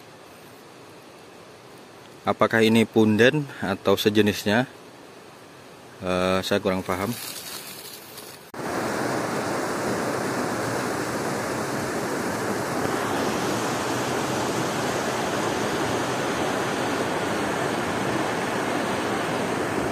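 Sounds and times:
river water rushing: 0:06.9 - 0:19.9.

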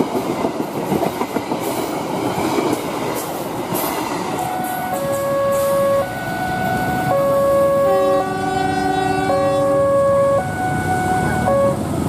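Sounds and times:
level crossing alarm tones: 0:04.4 - 0:11.8
lower tones: 0:04.4 - 0:11.9.

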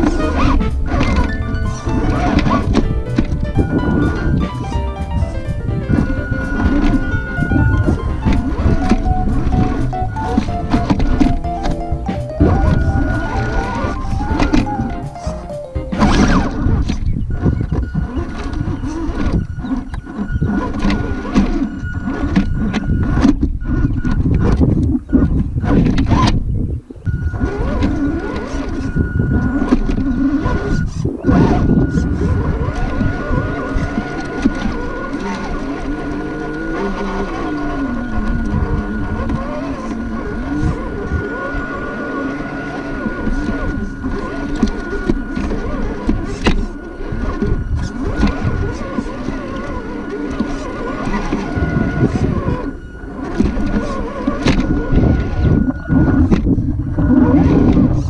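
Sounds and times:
toy truck motor whine: 0:00.0 - 0:15.4, 0:16.0 - 0:26.3, 0:27.1 - 0:58.0
low rumble: 0:00.0 - 0:34.9, 0:37.3 - 0:58.0.

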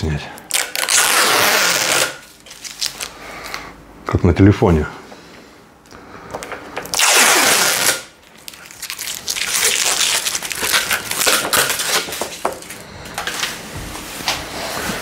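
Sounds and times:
plastic film ripping: 0:00.5 - 0:03.1, 0:06.9 - 0:13.6
plastic film crinkling: 0:00.5 - 0:03.2, 0:06.9 - 0:14.4.

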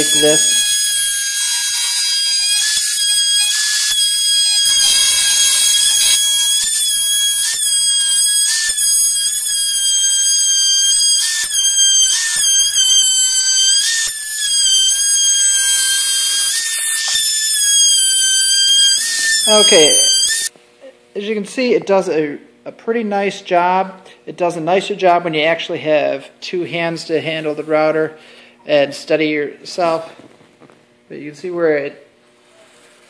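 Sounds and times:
router bit cutting wood: 0:00.0 - 0:20.5
trim router whining: 0:00.0 - 0:20.5.

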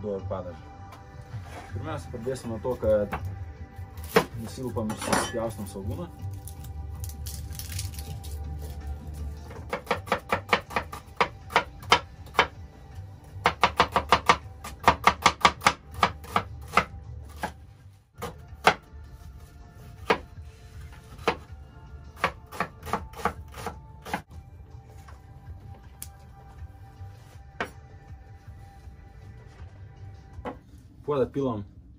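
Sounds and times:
knife chopping on wooden board: 0:09.5 - 0:12.6, 0:13.4 - 0:17.6, 0:18.2 - 0:18.9, 0:20.0 - 0:20.4, 0:21.0 - 0:21.5, 0:22.2 - 0:24.3.

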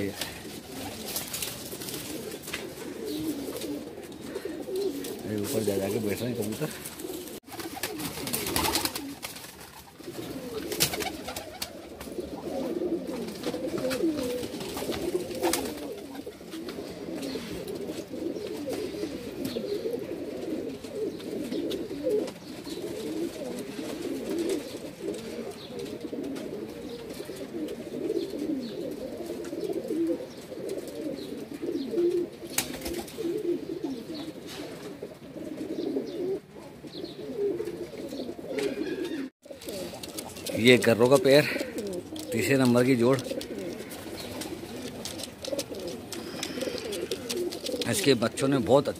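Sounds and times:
pigeons cooing: 0:00.0 - 0:48.9.

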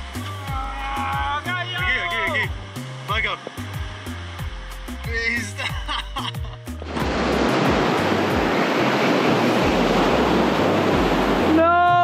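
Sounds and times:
surf breaking over rocks: 0:06.8 - 0:11.9.

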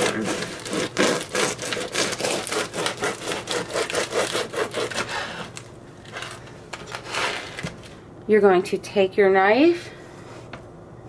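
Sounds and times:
knife sawing through bread crust: 0:00.0 - 0:05.6.

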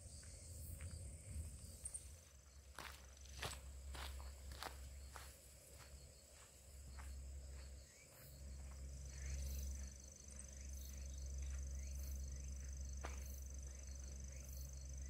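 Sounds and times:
faint pulsing insect trill: 0:00.0 - 0:15.0
insects buzzing high: 0:00.0 - 0:15.0
footsteps on gravel: 0:02.2 - 0:11.7.

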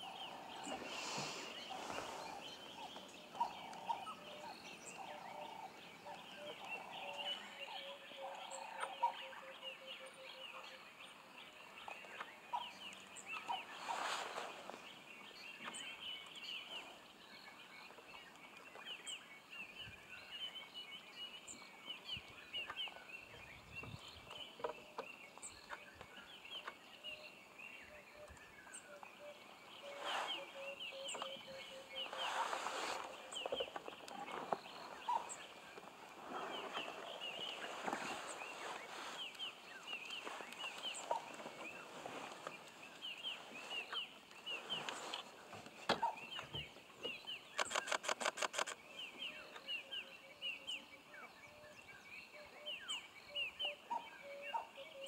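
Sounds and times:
wild dogs twittering: 0:00.0 - 0:09.5, 0:34.9 - 0:35.6, 0:41.0 - 0:41.5.

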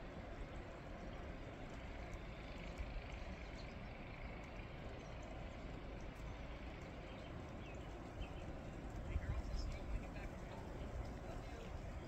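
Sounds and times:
snowstorm rumble and hiss: 0:00.0 - 0:12.0
faint ticks: 0:00.8 - 0:11.8.

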